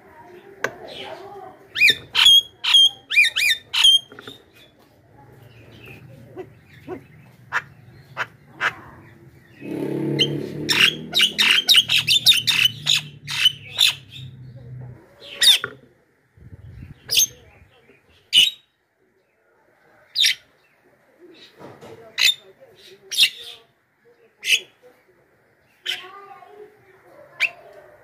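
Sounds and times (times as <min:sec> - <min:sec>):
bird squawking calls: 0:06.4 - 0:14.2.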